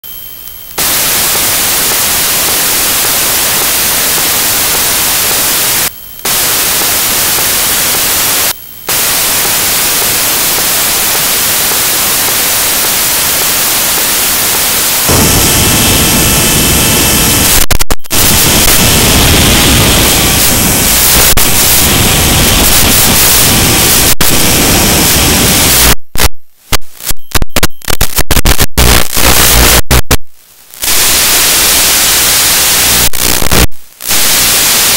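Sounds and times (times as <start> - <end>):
faint steady tones: 0.0 - 23.3
loud static hiss: 0.0 - 34.9.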